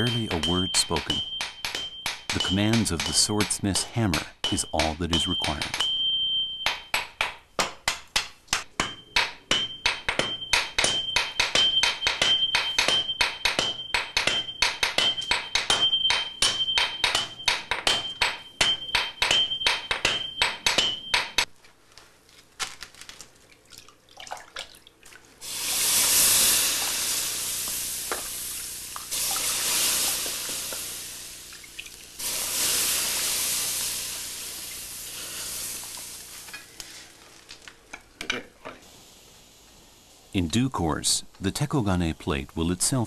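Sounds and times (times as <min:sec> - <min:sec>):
hammers ringing on anvil: 0:00.0 - 0:07.2, 0:08.8 - 0:21.5
hot steel hissing in slurry: 0:25.4 - 0:36.6.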